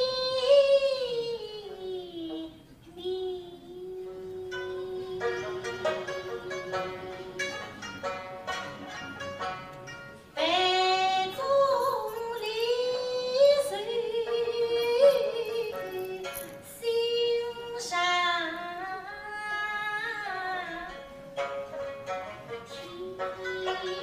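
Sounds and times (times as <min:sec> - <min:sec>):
woman singing: 0:00.0 - 0:07.0, 0:10.4 - 0:21.1, 0:22.8 - 0:24.0
plucked string accompaniment: 0:00.0 - 0:24.0.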